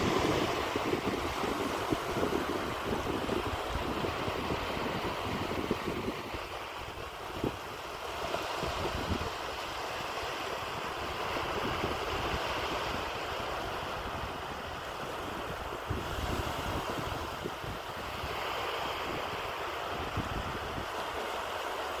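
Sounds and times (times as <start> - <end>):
wind gusting on microphone: 0.0 - 21.3
small waves washing on beach: 0.0 - 22.0.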